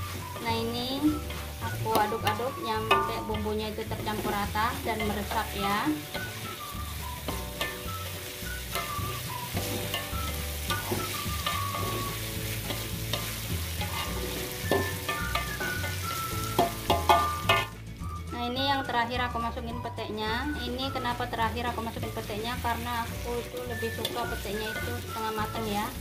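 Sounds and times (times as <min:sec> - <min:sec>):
spatula scraping a wok: 0:00.0 - 0:18.3, 0:20.9 - 0:26.0
paste sizzling: 0:00.0 - 0:26.0
knocks against the pan: 0:16.6 - 0:17.7.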